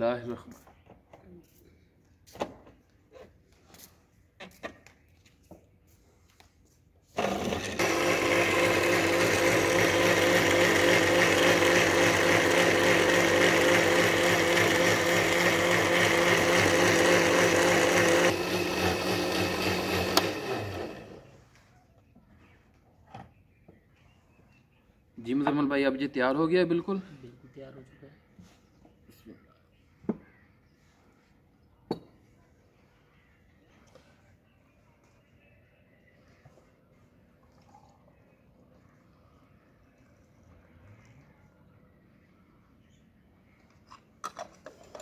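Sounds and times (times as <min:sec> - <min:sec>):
blender running: 0:07.2 - 0:21.3.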